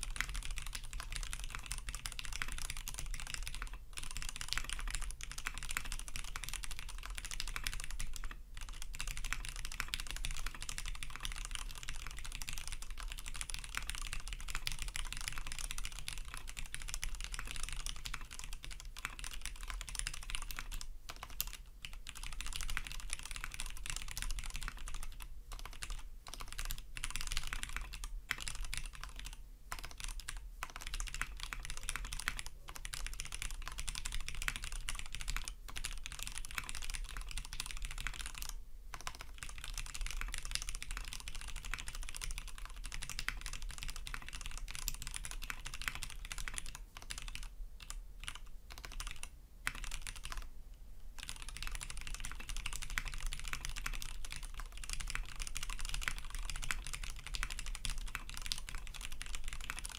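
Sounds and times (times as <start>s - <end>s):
mechanical keyboard typing: 0.0s - 50.5s, 51.2s - 59.9s.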